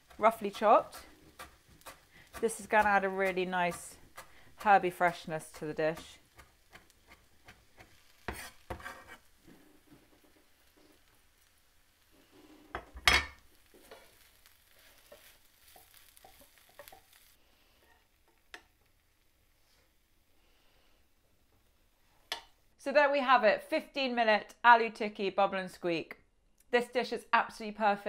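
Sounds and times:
wooden spoon scraping a pan: 0.0 - 11.4, 12.1 - 18.8
faint sizzle: 0.0 - 22.8.

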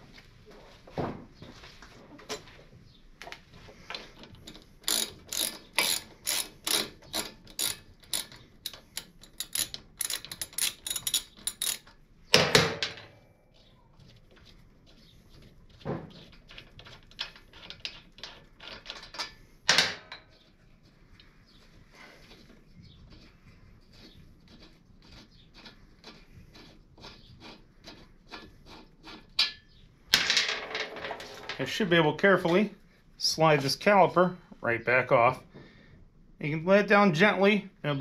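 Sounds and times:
hand ratchet clicking: 4.8 - 12.0.

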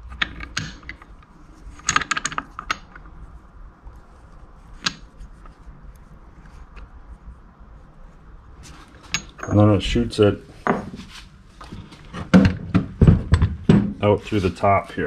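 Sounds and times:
metal parts clicking: 0.0 - 3.1, 8.9 - 9.7.

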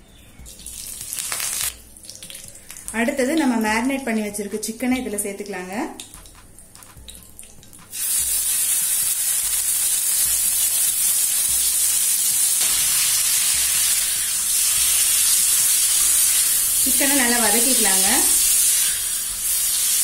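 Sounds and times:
chicken sizzling in hot oil: 0.8 - 1.8, 7.9 - 20.0.

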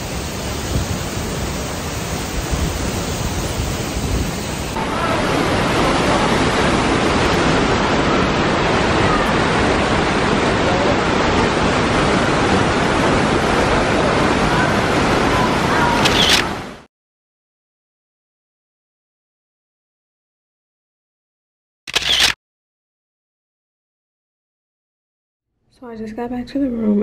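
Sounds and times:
running water rushing: 0.0 - 16.9.

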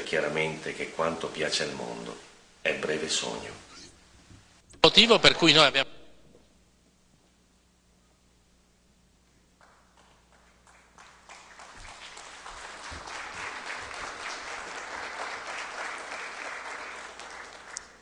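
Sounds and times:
audience applause: 9.6 - 18.0.

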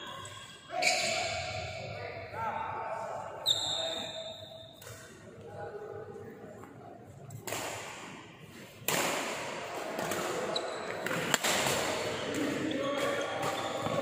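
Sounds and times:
rackets striking shuttlecock: 8.8 - 14.0.

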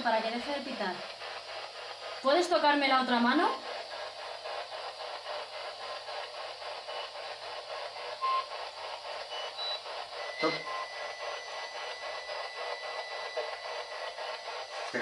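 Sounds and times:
pulsing radio static: 0.0 - 15.0.

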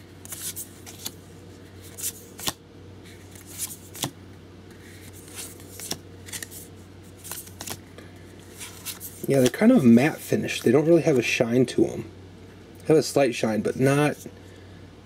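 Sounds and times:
faint steady hum: 0.0 - 15.0
cards sliding and flipping: 0.2 - 7.8, 8.4 - 10.7.

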